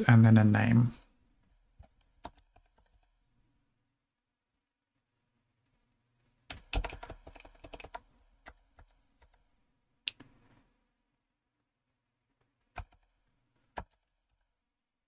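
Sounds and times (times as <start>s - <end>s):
typing on computer keyboard: 1.8s - 3.1s, 6.5s - 9.4s, 12.7s - 14.4s.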